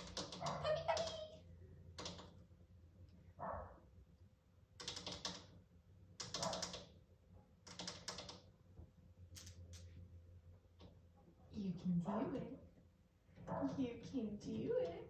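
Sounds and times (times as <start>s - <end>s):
puppy claws clicking on plastic: 6.2s - 6.9s.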